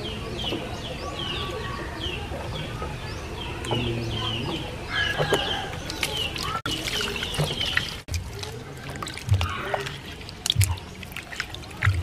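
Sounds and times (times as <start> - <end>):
small birds chirping: 0.0 - 12.0
water splashing in metal basin: 5.0 - 12.0.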